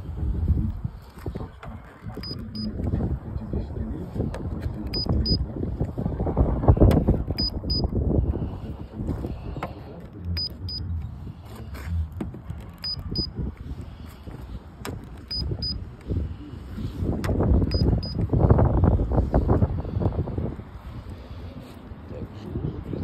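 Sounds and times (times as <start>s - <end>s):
low rumbling handling noise: 0.0s - 23.0s
gauge high double beep: 2.2s - 2.7s, 4.9s - 5.4s, 7.4s - 7.9s, 12.8s - 13.3s, 15.3s - 15.8s, 17.7s - 18.2s.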